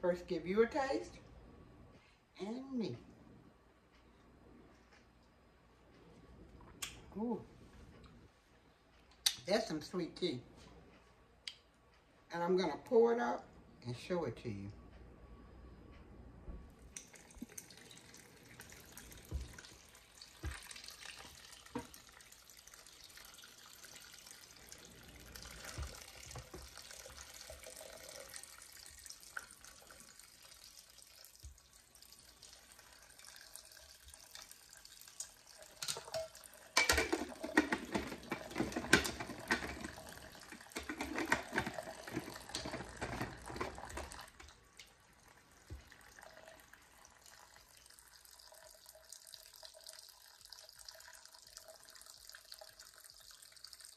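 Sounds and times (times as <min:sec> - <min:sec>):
liquid sloshing in glass jar: 0:35.5 - 0:44.6.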